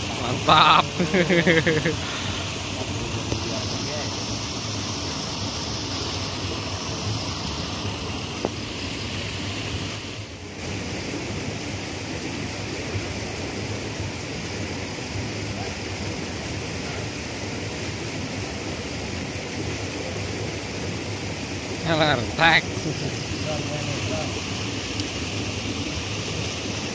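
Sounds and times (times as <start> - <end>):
river current rushing: 0.0 - 26.9.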